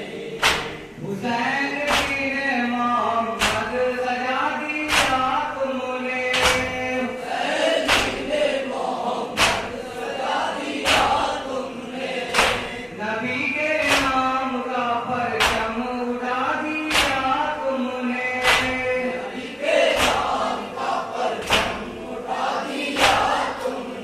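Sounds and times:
men chanting a lament: 0.0 - 24.0
hands slapping chests: 0.4 - 0.8, 1.9 - 2.2, 3.4 - 3.6, 4.9 - 5.2, 6.3 - 6.8, 7.8 - 8.3, 9.4 - 9.7, 10.8 - 11.3, 12.3 - 12.7, 13.8 - 14.2, 15.4 - 15.7, 16.9 - 17.2, 18.4 - 18.8, 20.0 - 20.4, 21.4 - 21.8.

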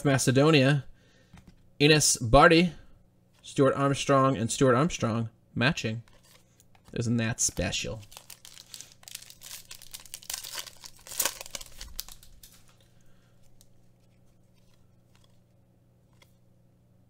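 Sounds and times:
foil wrapper crinkling and tearing: 7.6 - 15.3.

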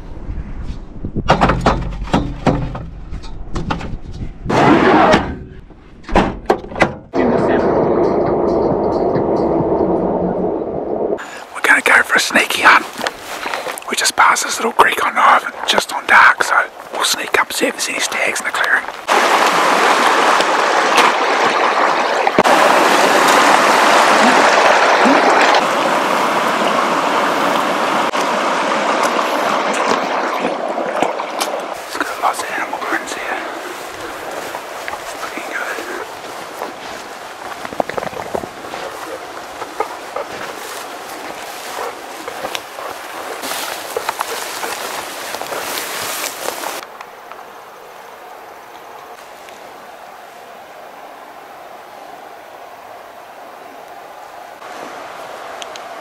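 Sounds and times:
river rushing over stones: 11.2 - 56.0.

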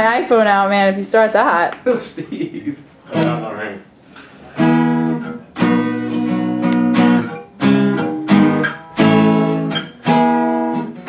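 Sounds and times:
acoustic guitar strumming chords: 3.1 - 11.0.

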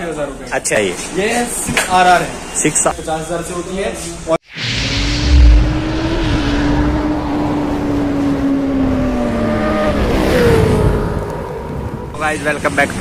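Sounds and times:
deep boom: 4.5 - 7.5
sport-bike engine revving: 4.8 - 11.2.

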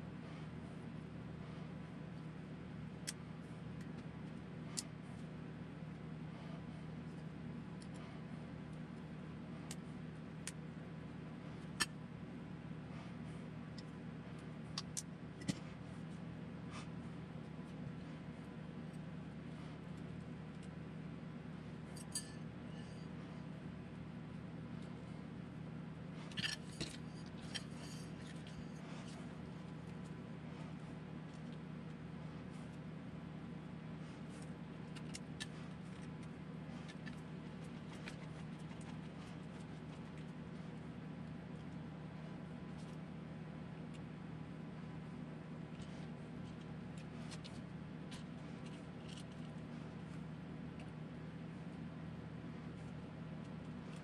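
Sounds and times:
steady low hum: 0.0 - 54.0
small parts clicking and tapping: 26.3 - 29.2, 34.3 - 40.3.

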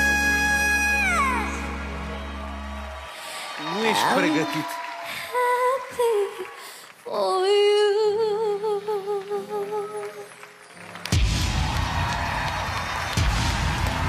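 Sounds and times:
audience applause: 1.2 - 7.1, 9.5 - 14.0
girl singing: 5.3 - 10.3.

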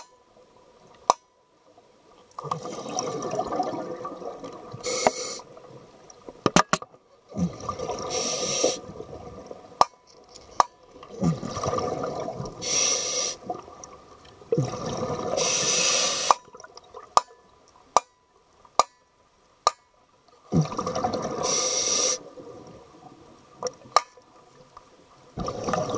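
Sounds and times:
diver breathing through regulator: 4.8 - 5.5, 8.0 - 8.8, 12.6 - 13.4, 15.4 - 16.4, 21.4 - 22.2.

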